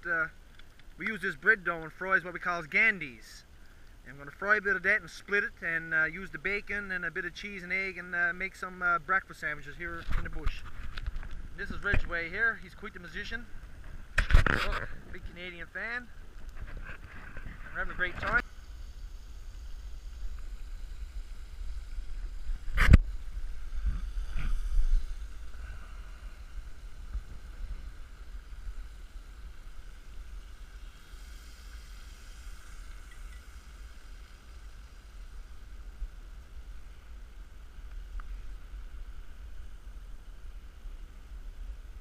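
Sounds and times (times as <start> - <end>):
faint hiss: 0.0 - 42.0
wind rumbling on microphone: 9.1 - 42.0.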